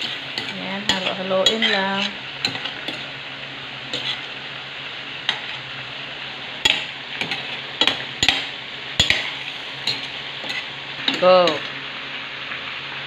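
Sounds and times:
metal spatula scraping pot: 0.0 - 3.2, 3.9 - 4.3, 6.6 - 11.6.

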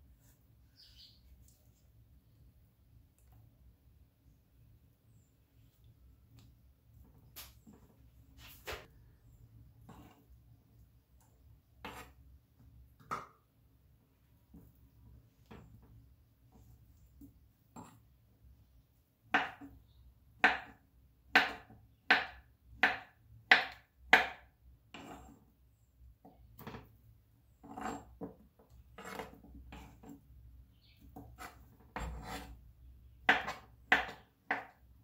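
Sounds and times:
knife chopping on wooden board: 19.3 - 19.7, 20.4 - 25.3, 31.2 - 32.5, 33.2 - 34.8.

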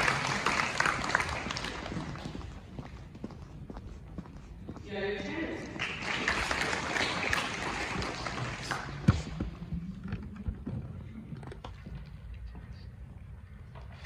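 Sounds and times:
audience applauding: 0.0 - 2.6, 5.7 - 9.1.

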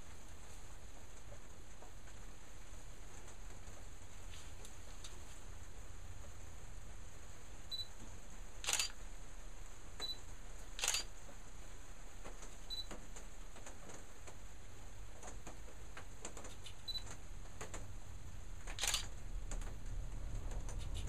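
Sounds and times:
low hum and hiss: 0.0 - 21.0
short sharp clicks: 8.6 - 9.0, 10.8 - 11.1, 18.7 - 19.1.

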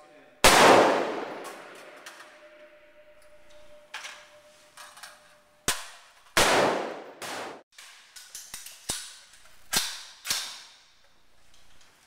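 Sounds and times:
rifle shots echoing: 0.4 - 2.1, 6.4 - 7.6.

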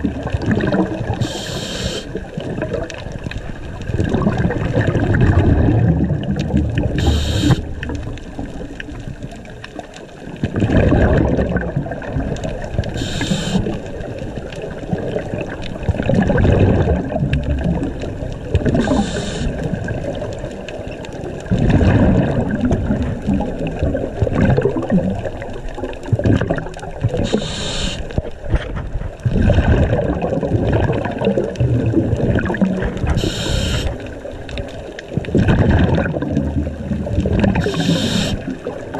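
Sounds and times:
exhaled bubbles gurgling: 0.0 - 38.9
regulator inhalation hiss: 1.2 - 2.1, 7.0 - 7.7, 13.0 - 13.7, 18.8 - 19.5, 27.2 - 28.1, 33.2 - 34.0, 37.6 - 38.4.

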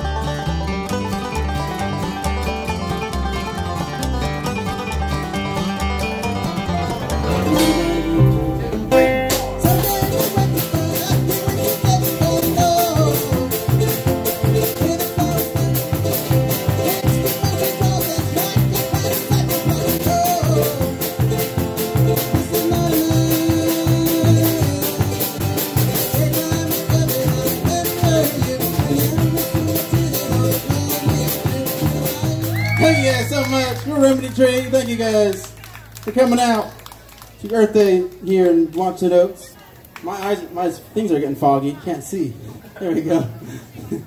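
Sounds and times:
drum kit beat: 0.0 - 33.5
acoustic guitar strumming: 0.0 - 35.2
upright bass plucked: 0.0 - 36.8.

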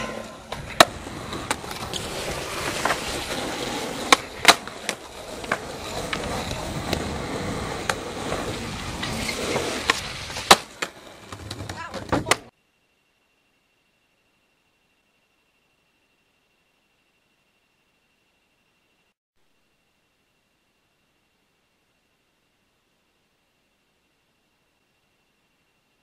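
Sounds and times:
skateboard clacking on ground: 0.0 - 12.5
skateboard wheels rolling on concrete: 0.0 - 12.6.

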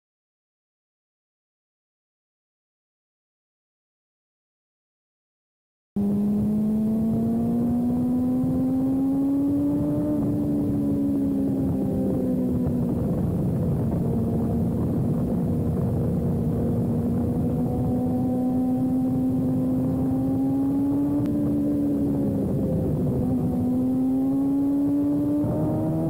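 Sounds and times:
motorcycle engine running hard: 6.0 - 26.0
wind rush: 6.8 - 26.0.

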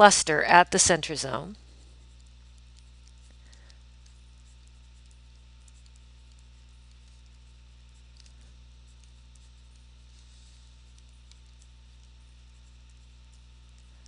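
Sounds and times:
low electrical hum: 0.0 - 14.0
stylus ticking on tablet screen: 2.1 - 10.0, 10.8 - 13.9.

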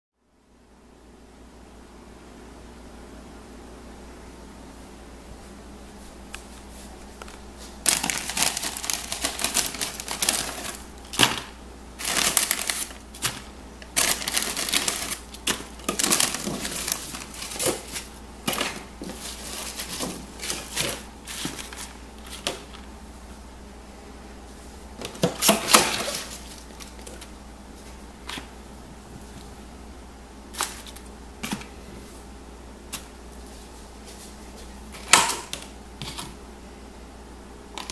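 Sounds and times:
salad leaves rustling in plastic: 6.7 - 22.8, 24.5 - 28.5, 30.5 - 32.3.

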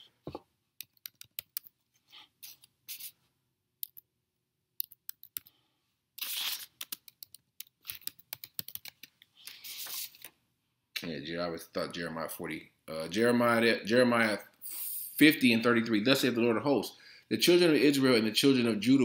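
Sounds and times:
short hissing sounds: 6.2 - 6.8, 14.6 - 15.2.

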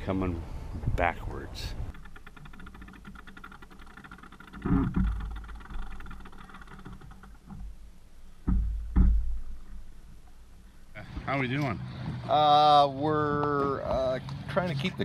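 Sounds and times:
wind buffeting microphone: 0.0 - 2.8
fast mechanical ticking: 1.9 - 7.9.

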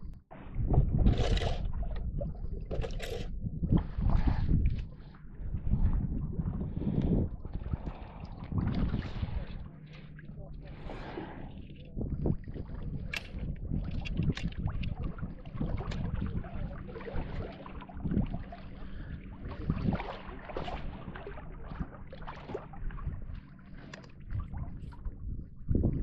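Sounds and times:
wind buffeting microphone: 0.0 - 9.7, 11.9 - 20.1, 20.7 - 23.4, 24.2 - 26.0
water splashes: 3.8 - 26.0.

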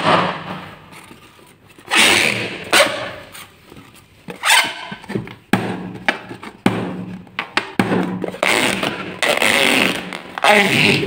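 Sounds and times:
rough rubbing on balloon: 1.2 - 3.6, 8.3 - 11.0
balloon squeaking: 1.8 - 3.6, 4.3 - 5.1, 8.2 - 11.0.

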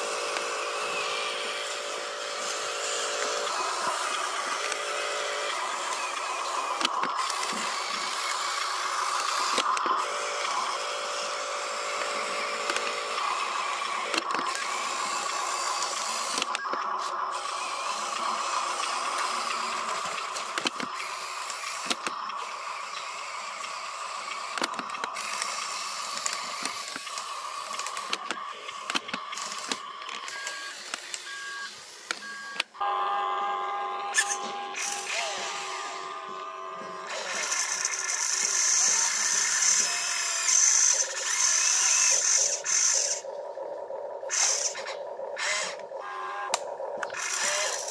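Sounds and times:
toy truck motor whining: 0.0 - 47.9
small clicks: 3.1 - 10.6, 12.0 - 17.3, 18.1 - 32.8.

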